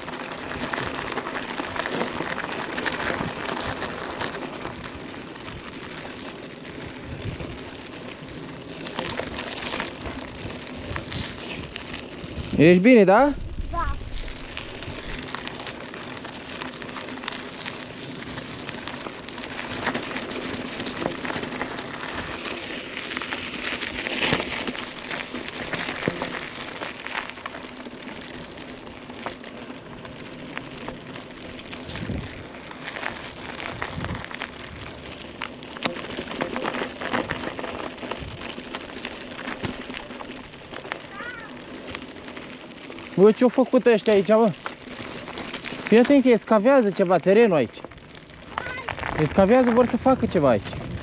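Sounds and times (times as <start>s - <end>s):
bike tyres crackling on dirt: 0.0s - 51.0s.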